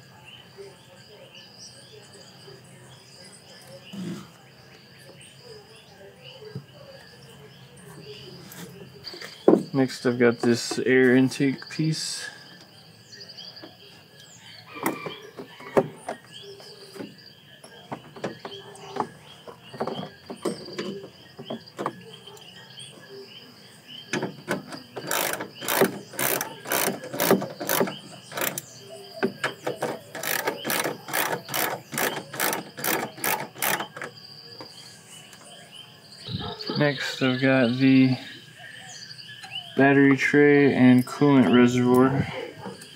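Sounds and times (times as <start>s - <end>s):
faint crickets chirping: 0.0s - 42.9s
socket ratchet clicking: 24.2s - 34.1s.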